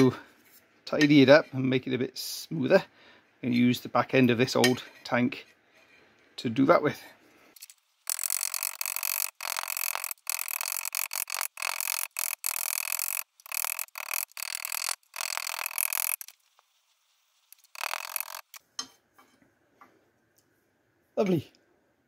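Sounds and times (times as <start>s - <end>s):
hammer rasping on steel: 8.1s - 16.3s, 17.6s - 18.6s.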